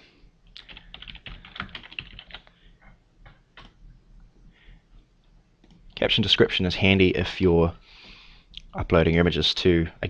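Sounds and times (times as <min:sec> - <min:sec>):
keyboard typing: 0:00.6 - 0:02.5, 0:03.3 - 0:03.8.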